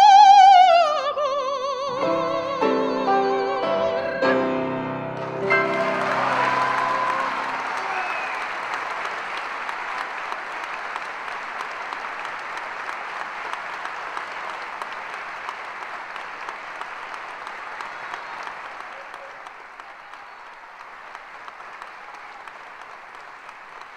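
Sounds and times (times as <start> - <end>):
audience applauding: 5.1 - 23.9.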